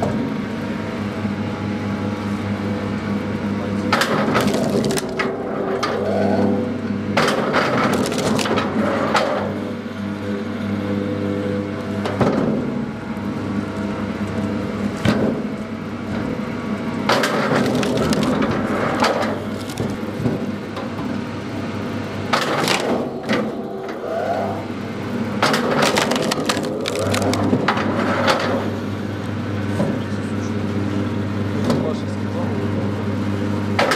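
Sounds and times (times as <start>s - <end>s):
log splitter motor hum: 0.0s - 29.7s
wood cracking and splintering: 4.0s - 5.3s, 7.8s - 8.7s, 17.1s - 20.2s, 25.4s - 27.7s.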